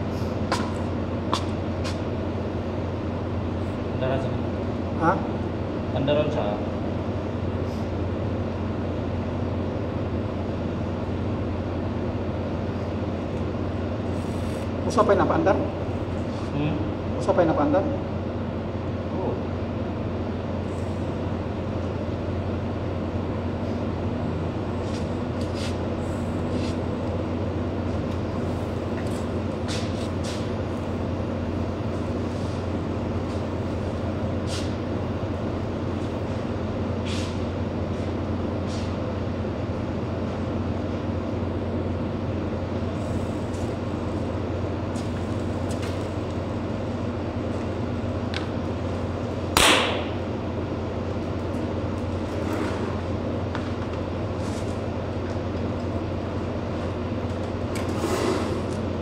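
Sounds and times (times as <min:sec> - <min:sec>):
flame shut-off pop: 0:49.5 - 0:50.2
torch flame hissing: 0:57.9 - 0:58.8.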